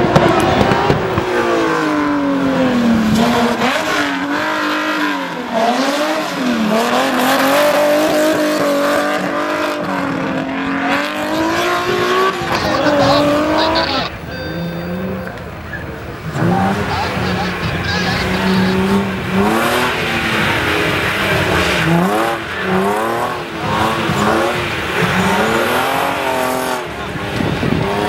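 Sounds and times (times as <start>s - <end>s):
race car engine revving: 0.0s - 28.0s.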